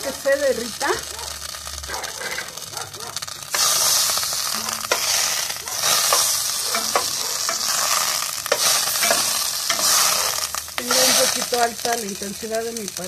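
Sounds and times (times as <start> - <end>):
butter sizzling in pot: 0.0 - 13.0
spoon clicking against pot: 6.1 - 7.7.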